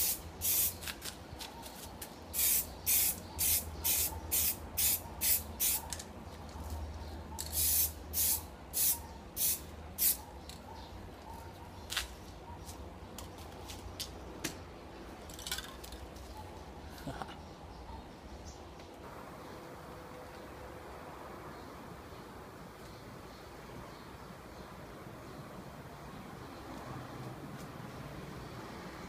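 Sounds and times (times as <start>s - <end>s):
spray can hissing in bursts: 0.0s - 1.0s, 2.3s - 5.8s, 7.4s - 10.2s.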